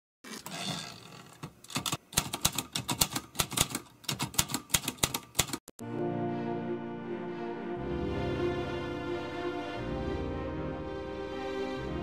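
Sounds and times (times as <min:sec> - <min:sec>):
typewriter keys clicking: 0:01.7 - 0:05.6.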